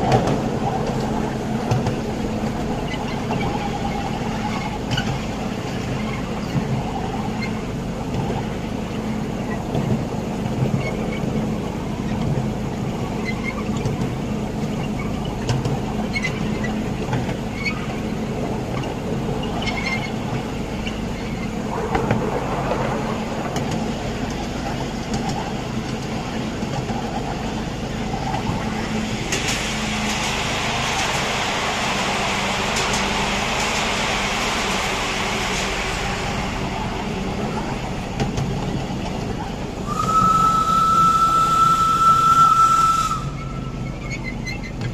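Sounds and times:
miniature train running on track: 0.0 - 22.8, 23.6 - 44.9
steam locomotive hiss: 27.0 - 44.1.

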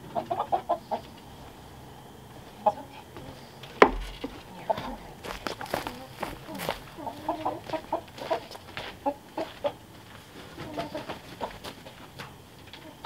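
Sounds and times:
chickens clucking: 0.0 - 13.0
light knocks: 3.7 - 4.4.

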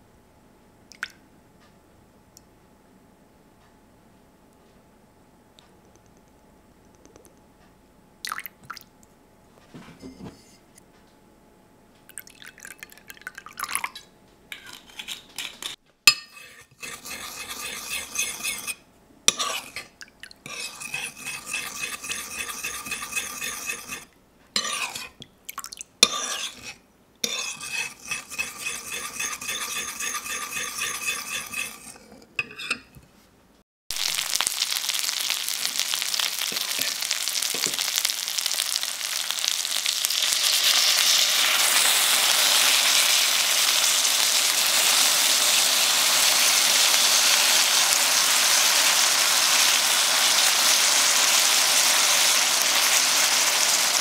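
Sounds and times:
sauce pouring: 12.1 - 14.0, 33.9 - 54.0
metal spoon scraping a bowl: 14.5 - 25.2, 26.0 - 33.0
frying sizzle: 33.9 - 54.0.

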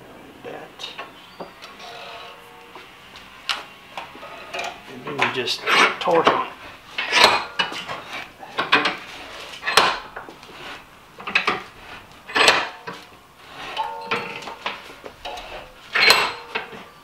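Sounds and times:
metal clicks and clanks of vise: 4.5 - 8.0, 8.6 - 9.0, 9.6 - 10.3, 11.2 - 11.7, 12.3 - 13.1, 13.7 - 16.9.

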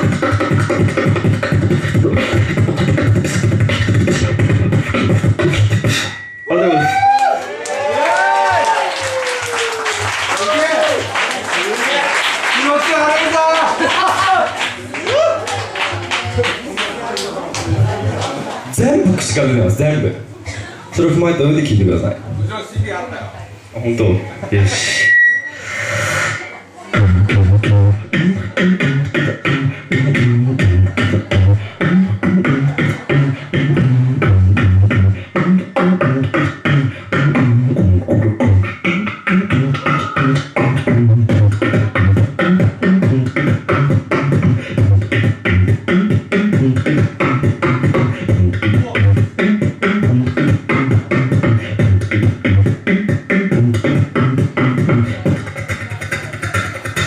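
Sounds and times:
deep pulsing bass tones: 0.0 - 6.1, 27.0 - 57.0
person beatboxing into microphone: 0.0 - 6.2, 17.5 - 23.0, 23.6 - 57.0.

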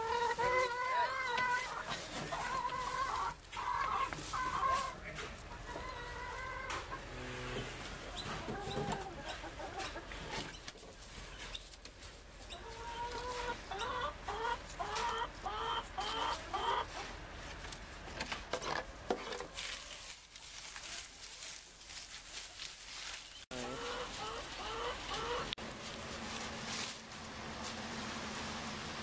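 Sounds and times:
chickens clucking: 0.0 - 17.7, 23.5 - 25.6.

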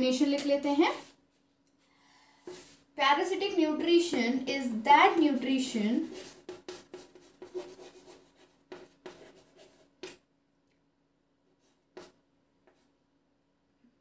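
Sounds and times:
pen scratching on paper: 6.0 - 10.2, 11.6 - 12.9.

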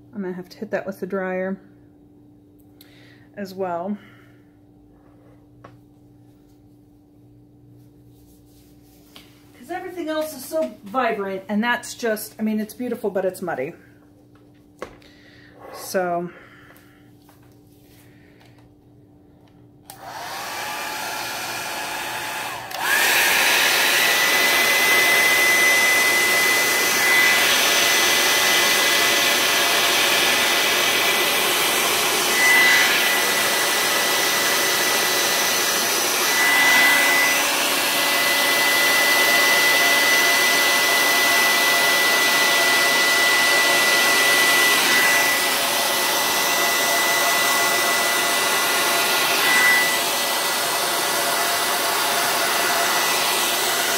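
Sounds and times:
hair dryer running: 9.1 - 13.7, 19.4 - 53.9.

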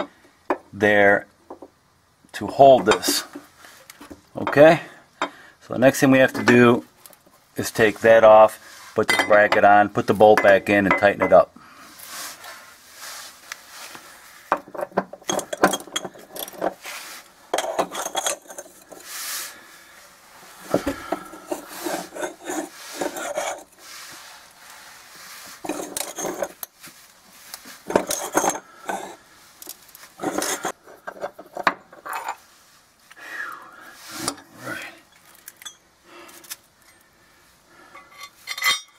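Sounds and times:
metal clinks: 35.1 - 35.9, 38.0 - 38.9.

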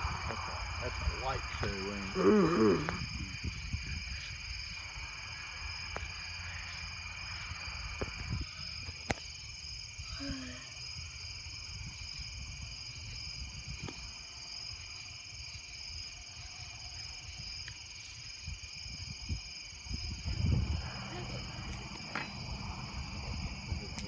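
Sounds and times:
crickets trilling: 0.0 - 24.0
low rumble: 20.0 - 24.0.

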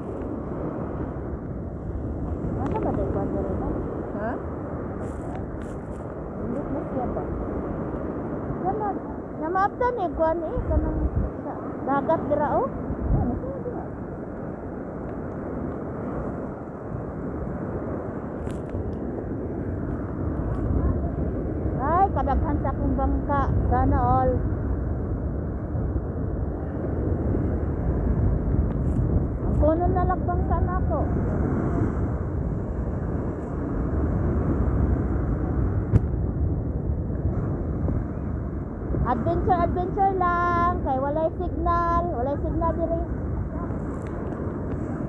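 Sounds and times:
surf waves breaking on beach: 0.0 - 45.0
wind buffeting microphone: 0.0 - 45.0.

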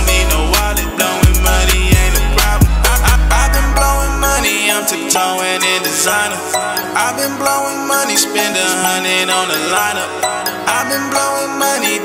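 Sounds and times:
deep bass: 0.0 - 4.4
hip-hop track: 0.0 - 12.0.

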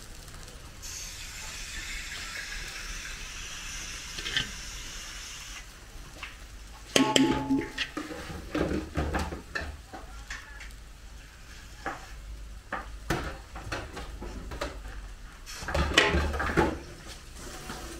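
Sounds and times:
metal ladle scraping a wok: 4.1 - 4.7.

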